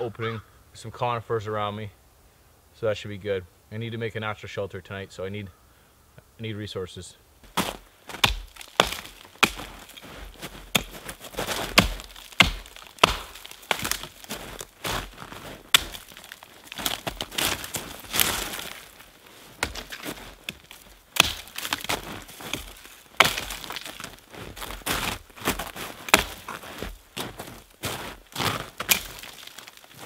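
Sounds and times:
branches rustling: 7.3s - 30.0s
axe chopping branches: 7.5s - 24.2s, 24.8s - 26.9s, 28.4s - 29.8s
wood cracking and snapping: 7.6s - 30.0s.

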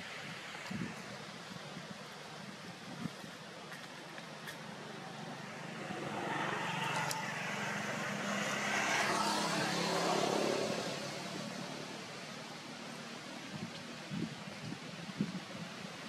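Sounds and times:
motor vehicle passing by: 4.6s - 12.4s.

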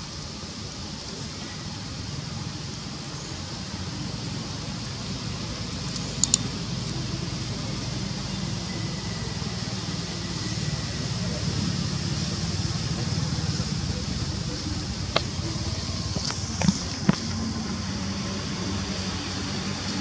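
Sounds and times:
hiss: 0.0s - 20.0s
sharp clicks: 5.9s - 7.0s.

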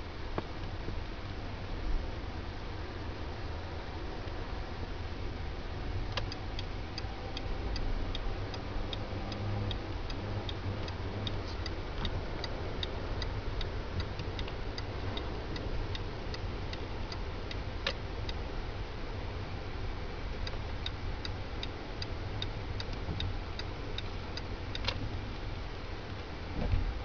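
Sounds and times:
engine and road rumble: 0.0s - 27.0s
turn signal clicking: 6.1s - 18.5s, 20.3s - 25.5s.

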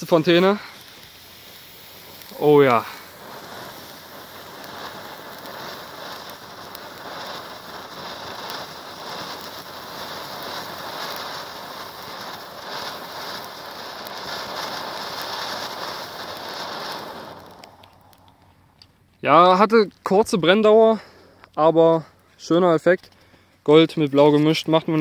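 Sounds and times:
firework fountain hissing spray: 0.0s - 18.8s
small crackles: 0.0s - 25.0s.

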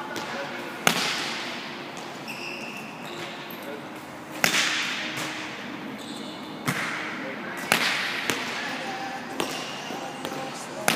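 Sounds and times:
volleyball smacks echoing: 0.1s - 2.1s, 4.4s - 5.6s, 6.6s - 10.9s
short high squeak: 2.2s - 3.4s.

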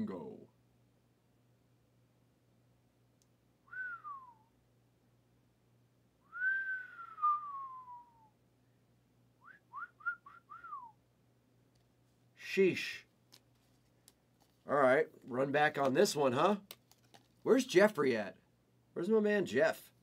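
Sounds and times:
man whistling: 3.7s - 4.5s, 6.2s - 8.3s, 9.4s - 11.0s.

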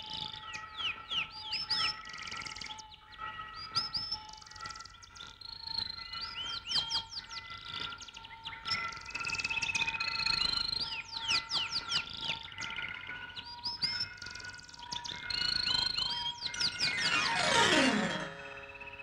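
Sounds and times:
steady held tones: 16.7s - 19.0s.

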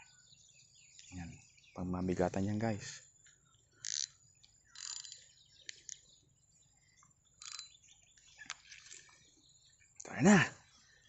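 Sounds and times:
fishing reel clicks: 3.8s - 4.2s, 4.8s - 6.0s, 7.4s - 7.8s.

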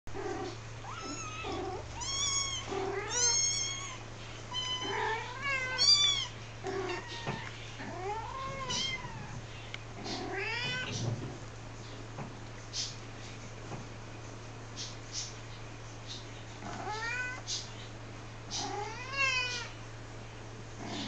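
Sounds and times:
kittens mewing: 0.3s - 9.4s, 18.5s - 19.7s.

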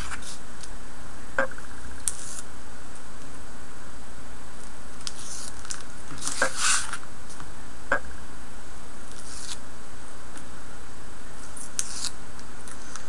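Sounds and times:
steady low hum: 0.0s - 13.0s
paper and tape rustling: 5.0s - 7.4s.

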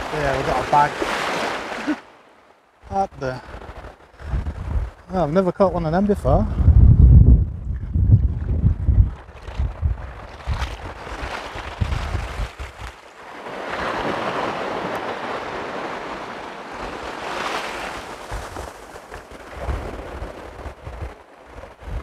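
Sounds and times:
waves washing up pebble beach: 0.0s - 2.3s, 9.3s - 22.0s
wind rumble on microphone: 2.8s - 22.0s.

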